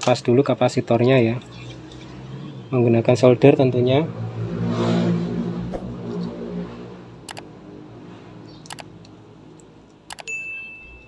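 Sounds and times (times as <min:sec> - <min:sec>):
whoosh: 0:04.4 - 0:06.8
mouse clicks: 0:08.6 - 0:08.9.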